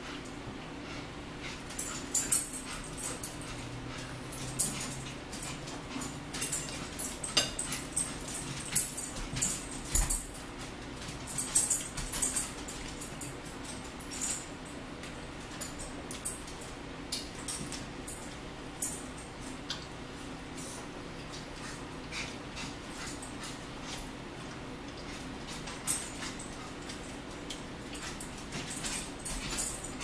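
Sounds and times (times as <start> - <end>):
low steady hum: 0.0 - 30.0.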